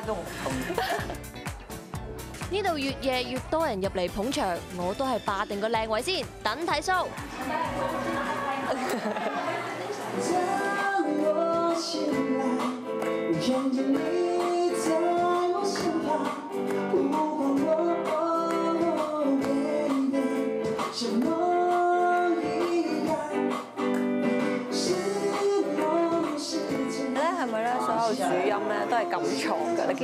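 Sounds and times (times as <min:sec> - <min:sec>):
electric guitar: 0:07.1 - 0:30.0
person singing into microphone: 0:10.0 - 0:30.0.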